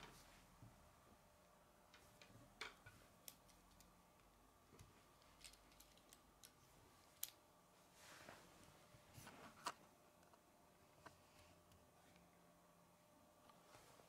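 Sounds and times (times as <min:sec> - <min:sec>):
plastic parts clicking: 0:05.2 - 0:07.4.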